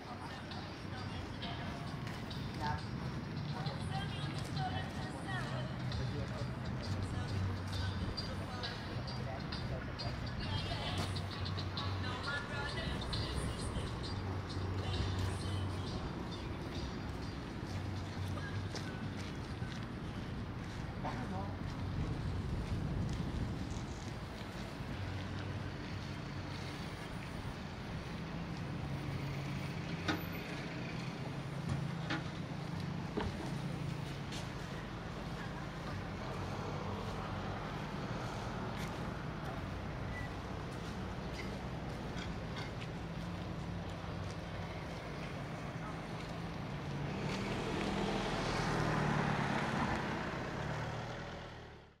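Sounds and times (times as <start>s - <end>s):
street noise: 0.0s - 52.0s
tyre and road noise: 0.0s - 52.0s
car engine hum passing: 22.0s - 52.0s.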